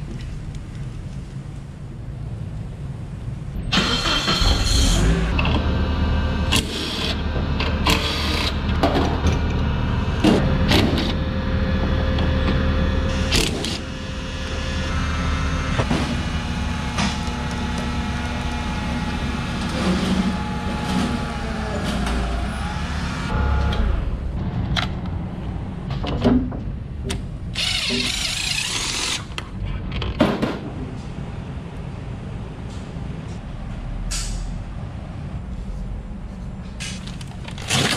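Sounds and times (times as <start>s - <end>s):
forklift engine humming: 3.7s - 26.0s.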